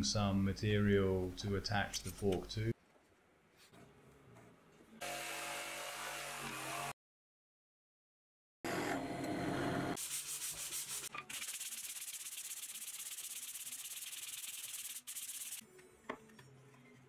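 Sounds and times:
sanding block rubbing wood: 10.0 - 15.6.

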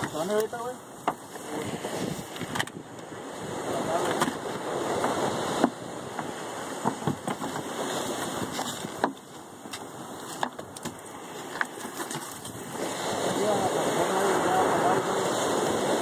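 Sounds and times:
surf: 0.0 - 16.0
wind rushing: 1.4 - 6.8
fish and net knocking on boat: 4.0 - 12.6.

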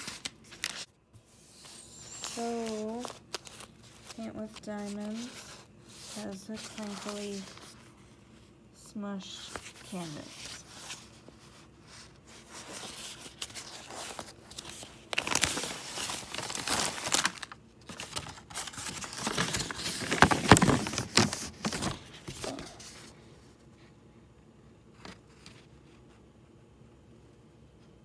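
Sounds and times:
plastic packaging crinkling: 0.0 - 0.9, 1.7 - 7.8, 12.3 - 23.0.

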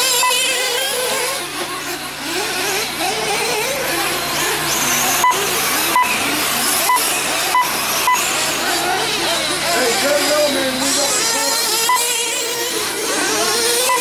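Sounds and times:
rc car motors whining: 0.0 - 14.0
short sharp beeps: 5.2 - 6.2, 6.8 - 8.3, 11.9 - 12.1.

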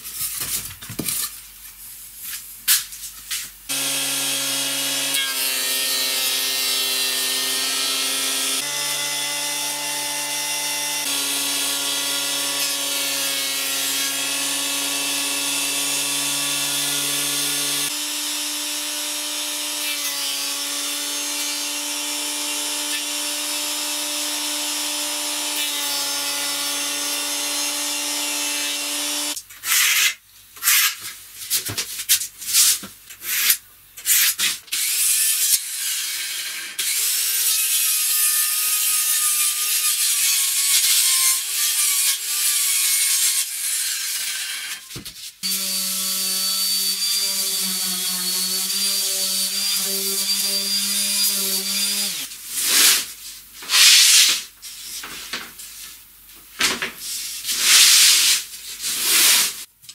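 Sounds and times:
electric planer planing wood: 3.7 - 29.4.

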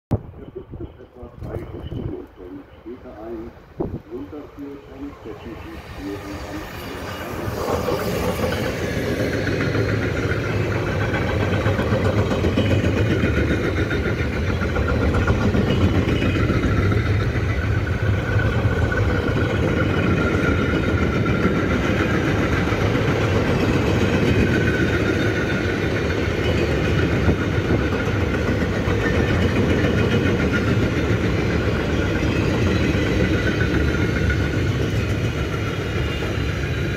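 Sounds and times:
faint whine: 0.1 - 7.6
freight train wheels rumbling: 0.1 - 36.9.

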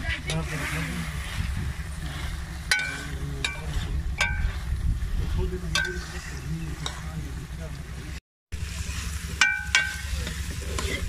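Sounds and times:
low steady rumble: 0.0 - 11.0
metal ladle clinking on pot: 9.4 - 10.1.

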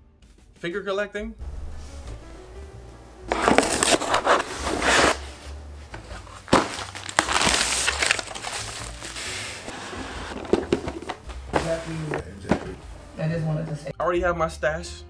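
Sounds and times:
cardboard box being torn open: 3.3 - 5.3, 6.1 - 10.7
packing paper and bubble wrap crinkling: 3.3 - 13.2.

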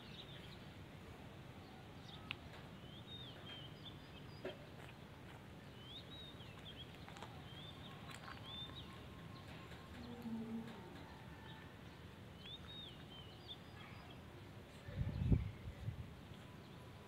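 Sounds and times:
faint outdoor hum: 0.0 - 17.0
small birds chirping: 0.0 - 17.0
soft clicks: 2.2 - 2.7.

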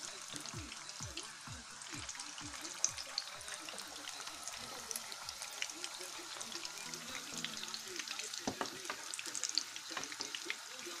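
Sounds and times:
deep-frying sizzle in oil: 0.0 - 11.0
knocks: 8.5 - 9.0.

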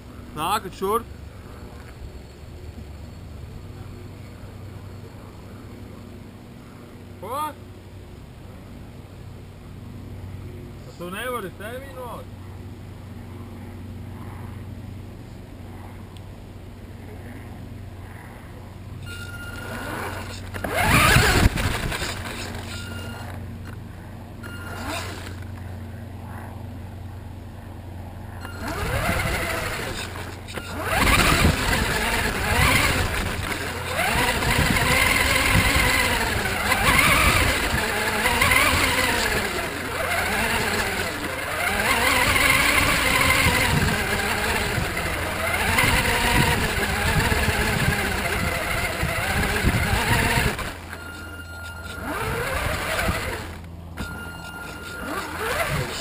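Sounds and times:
toy car motor whining: 19.0 - 23.8, 24.4 - 25.6, 28.3 - 56.0.

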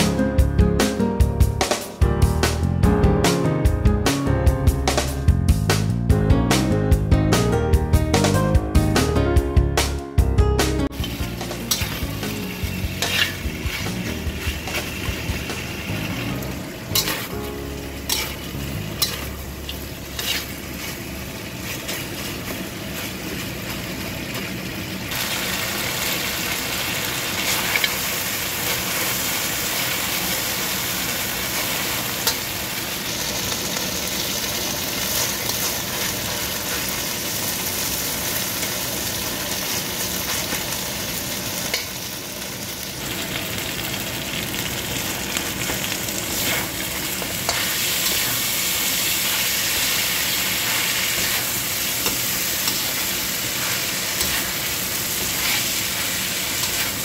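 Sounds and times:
chicken sizzling in a wok: 10.8 - 57.0
metal spatula scraping: 11.0 - 23.8, 46.3 - 57.0.

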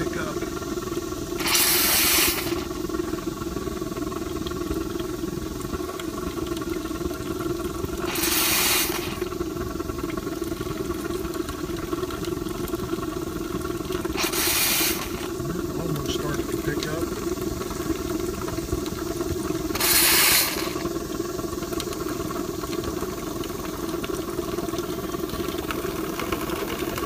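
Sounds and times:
steam hissing bursts: 0.0 - 6.3, 7.2 - 11.2, 13.0 - 23.9
burner fire hum: 0.0 - 27.0.

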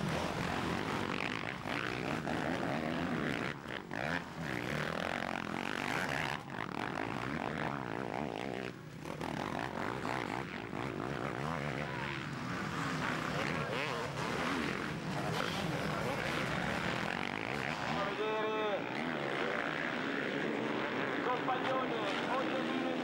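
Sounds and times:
motocross bike engines revving: 0.0 - 23.0.

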